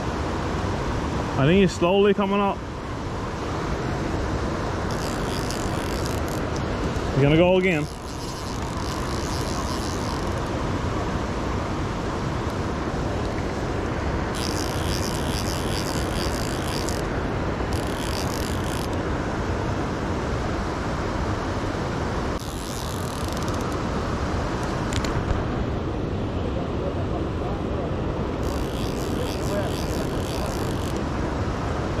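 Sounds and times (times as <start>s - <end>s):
fast river water rushing: 0.0s - 26.4s
fly reel clicking: 4.9s - 6.6s, 7.7s - 10.5s, 14.4s - 17.1s, 17.7s - 19.0s, 22.4s - 23.8s, 28.4s - 31.0s.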